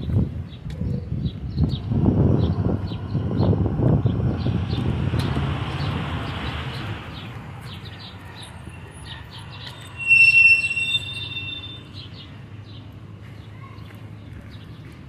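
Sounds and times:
street traffic hum: 0.0s - 15.0s
loud high-pitched squeal: 9.6s - 12.0s.

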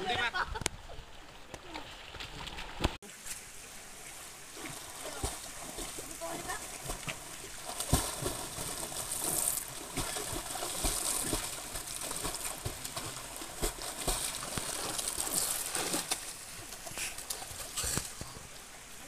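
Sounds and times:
swimmers splashing in water: 4.5s - 18.4s.

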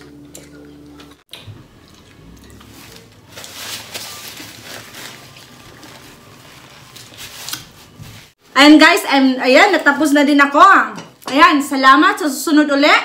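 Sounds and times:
paper napkin rustling: 2.7s - 8.4s.

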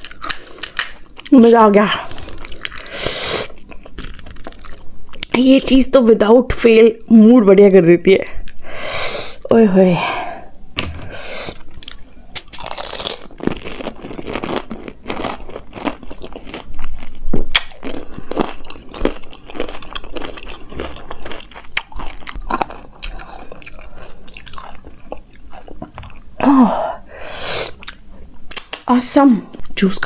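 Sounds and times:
crisp shell crunching and chewing: 0.0s - 5.4s, 11.5s - 26.4s, 27.7s - 28.9s.

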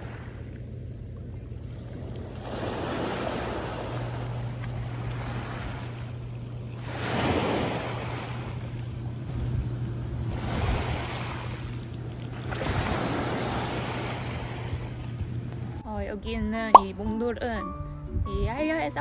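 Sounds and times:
small waves washing on beach: 0.0s - 0.6s, 1.6s - 9.4s, 10.2s - 15.4s
low hum: 0.1s - 18.7s.

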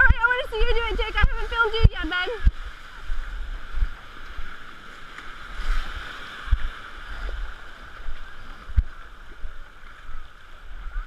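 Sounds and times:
low thumps: 0.0s - 2.7s
ocean surf washing in: 0.0s - 11.0s.

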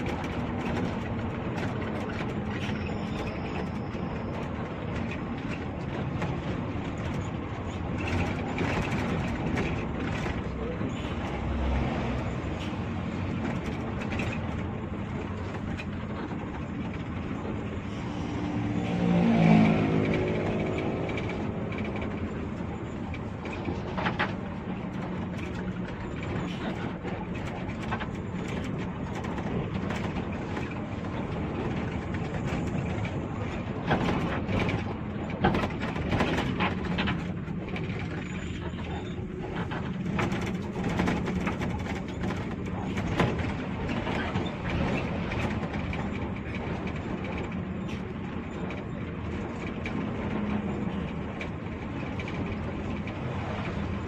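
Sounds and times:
bus diesel engine running: 0.0s - 54.0s
road noise: 0.0s - 54.0s
body knocks and rattles: 20.0s - 54.0s.

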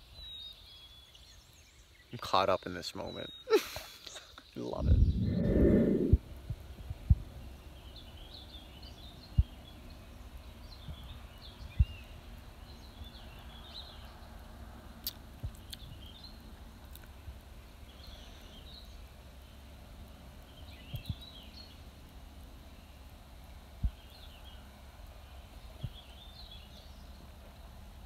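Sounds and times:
songbirds chirping: 0.0s - 28.0s
sharp low thumps: 4.8s - 6.3s.

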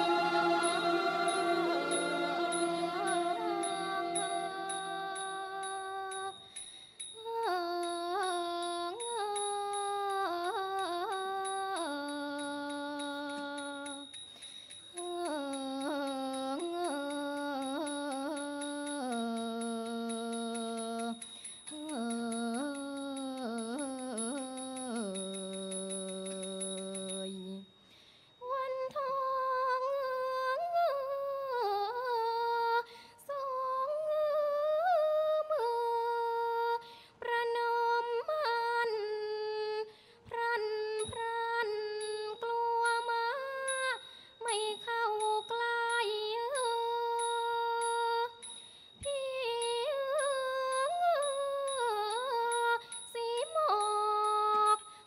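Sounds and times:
higher voices singing ornamented melody: 0.0s - 6.2s
singers breathing: 27.8s - 28.4s.

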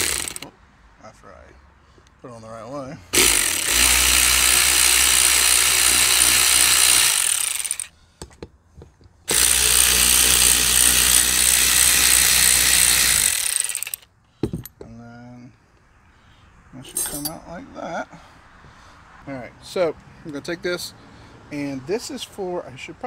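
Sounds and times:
electric ratchet spinning: 0.0s - 0.5s, 3.2s - 7.9s, 9.3s - 14.1s.

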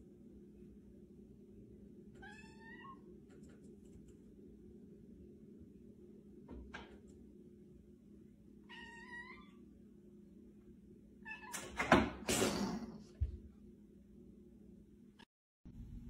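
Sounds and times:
cat meowing: 2.2s - 3.1s, 8.6s - 9.6s.

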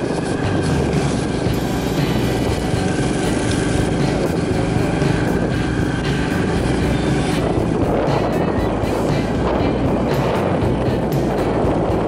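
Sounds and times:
motorbike engine running: 0.0s - 12.0s
road and wind rush: 0.0s - 12.0s.

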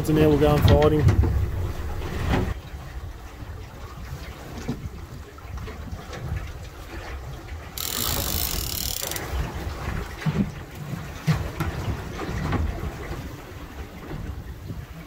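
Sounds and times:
wind buffeting microphone: 0.0s - 7.5s
water slapping boat hull: 0.0s - 15.0s.

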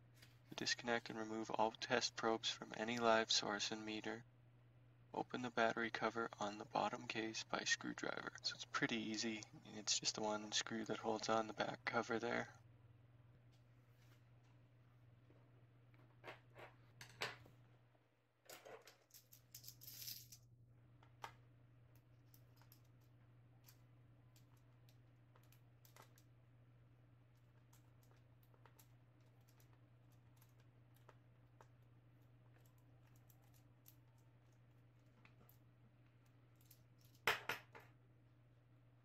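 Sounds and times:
soft handling rustles and scrapes: 0.0s - 1.2s, 13.4s - 17.0s.

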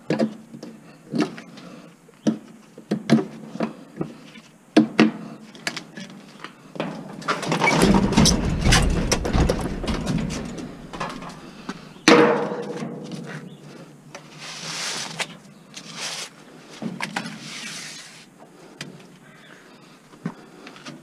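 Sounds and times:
metal rattling and knocking: 6.8s - 12.7s.

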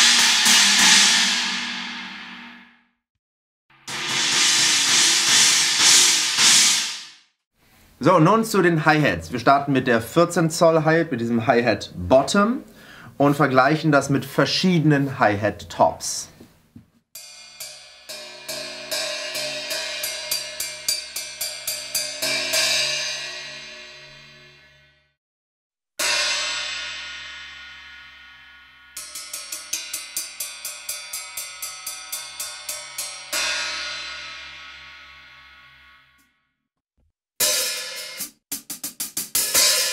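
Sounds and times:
hi-hat struck with drumstick: 0.0s - 2.5s, 3.8s - 7.2s, 17.2s - 23.0s, 29.0s - 34.6s, 37.4s - 39.9s.

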